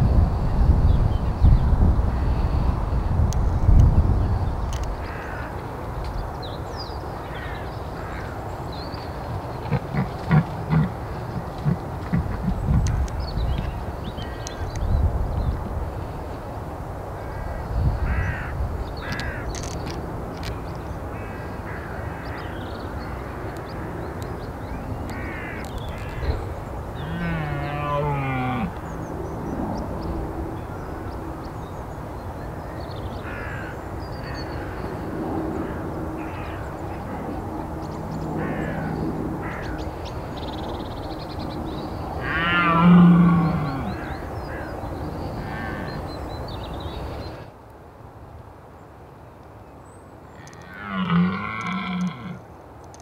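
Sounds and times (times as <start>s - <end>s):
crows cawing: 5.0s - 5.6s, 7.2s - 8.4s, 17.2s - 19.8s, 21.1s - 24.0s, 25.1s - 26.4s, 27.0s - 28.8s, 33.2s - 37.4s, 38.4s - 39.9s, 42.2s - 46.2s, 50.4s - 52.4s
deer stag roaring: 27.0s - 28.8s, 42.2s - 44.2s, 50.6s - 52.4s.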